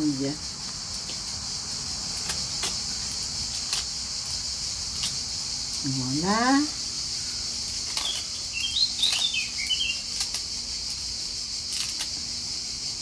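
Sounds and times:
insects chirring: 0:00.0 - 0:13.0
small bird chirping: 0:06.9 - 0:10.6
lettuce leaves tearing: 0:07.6 - 0:12.2.

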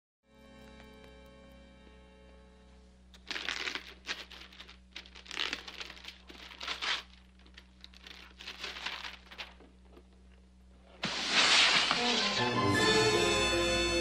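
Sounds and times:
wrapping paper crinkling: 0:03.2 - 0:10.0, 0:11.0 - 0:12.5.

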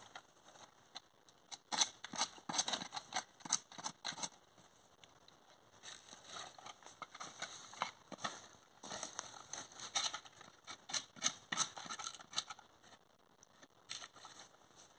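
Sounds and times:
tool scraping tree bark: 0:01.6 - 0:04.4, 0:09.7 - 0:12.6
footsteps on dry pine needles: 0:07.3 - 0:09.9.

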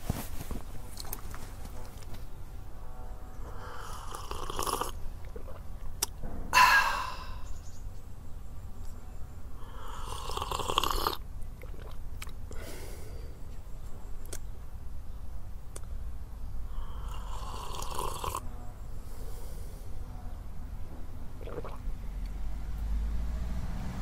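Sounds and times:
person slurping coffee: 0:03.6 - 0:05.6, 0:09.7 - 0:12.0, 0:16.8 - 0:18.4, 0:21.4 - 0:21.8.

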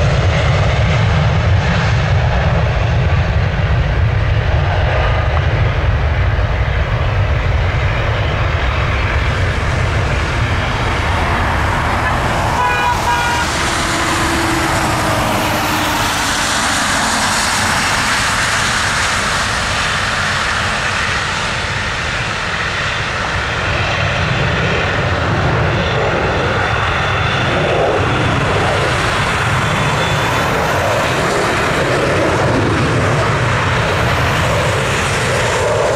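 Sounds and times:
high engine whine: 0:00.0 - 0:35.9
jet engine roar: 0:00.0 - 0:35.9.

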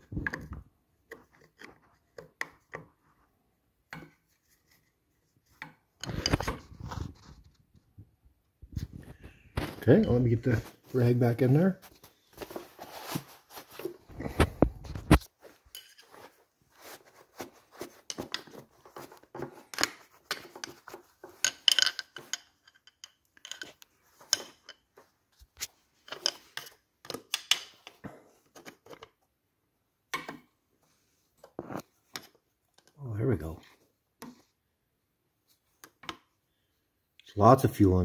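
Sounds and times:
cloth rustling: 0:08.8 - 0:21.5.

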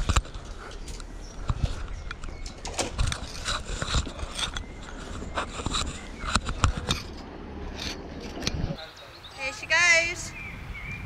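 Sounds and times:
rustling and scraping on camera: 0:00.0 - 0:08.8.

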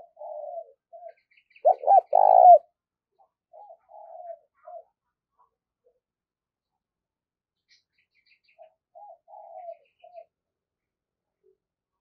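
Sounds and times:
dove cooing: 0:00.0 - 0:02.7, 0:03.5 - 0:05.0, 0:08.9 - 0:10.3.

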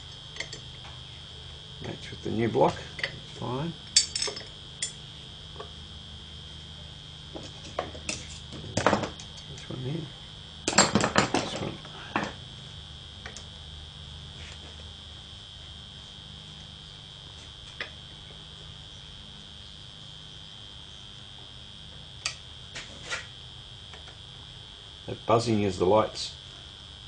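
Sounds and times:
high-pitched buzz of lights: 0:00.0 - 0:27.0
tools clattering: 0:04.0 - 0:04.5.

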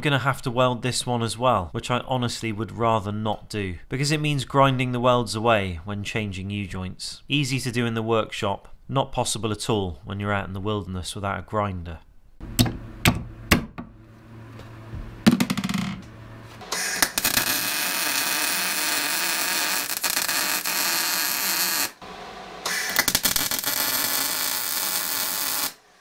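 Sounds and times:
welder arc crackling: 0:15.6 - 0:26.0.

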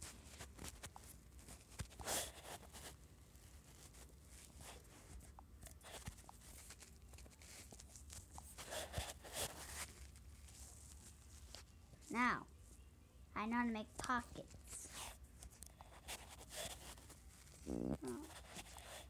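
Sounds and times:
rustling and taps on microphone: 0:00.0 - 0:02.0.

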